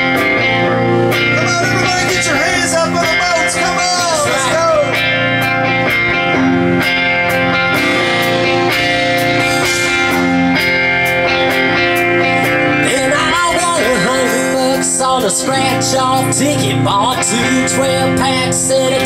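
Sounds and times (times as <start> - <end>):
electric guitars: 0.0 - 19.0
drum kit with cymbal hits: 1.2 - 16.3.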